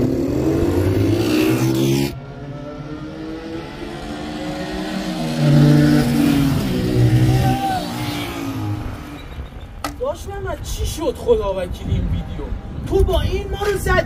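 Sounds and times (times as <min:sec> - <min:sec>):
motorcycles accelerating past: 0:00.0 - 0:09.4.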